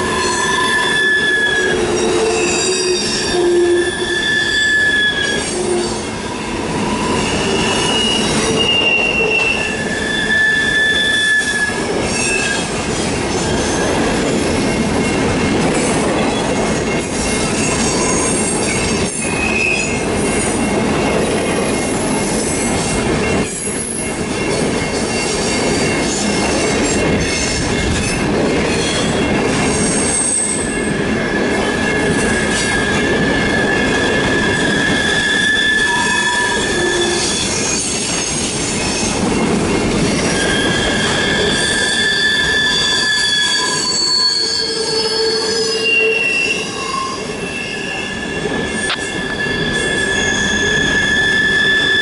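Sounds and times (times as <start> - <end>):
high-pitched flange squeal: 0.0 - 12.8, 17.2 - 20.0, 26.2 - 39.2, 40.1 - 52.0
train wheels rumbling on rail: 0.0 - 52.0.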